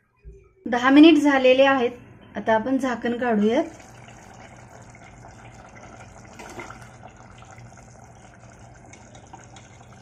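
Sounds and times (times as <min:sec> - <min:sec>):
curry bubbling in a pot: 0:03.6 - 0:10.0
ladle stirring in a pot: 0:03.7 - 0:10.0.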